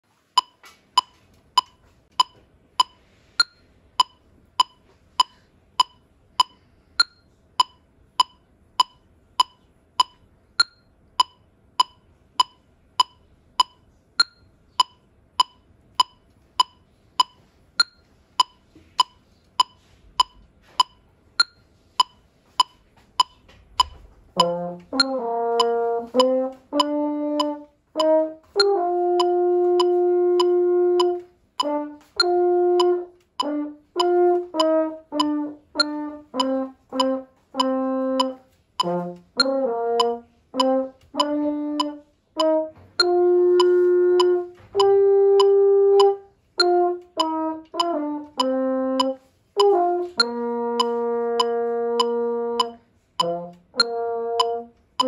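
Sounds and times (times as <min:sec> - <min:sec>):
metronome clicking: 0:00.3 - 0:55.0
french horn notes: 0:24.4 - 0:54.8.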